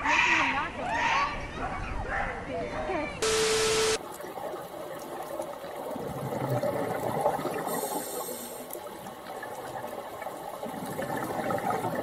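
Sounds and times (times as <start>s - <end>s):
diver bubbling exhalation: 10.6s - 12.0s.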